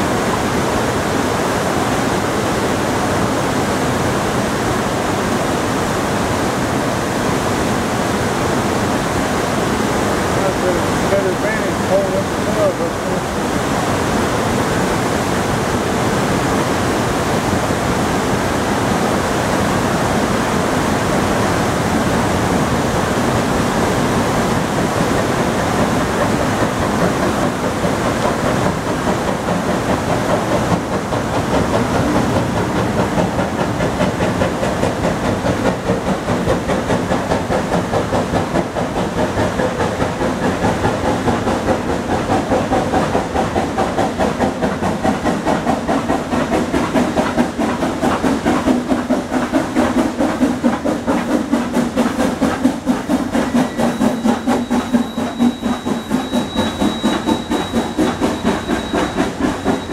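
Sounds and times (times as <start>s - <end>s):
steam locomotive chuffing: 0.0s - 59.9s.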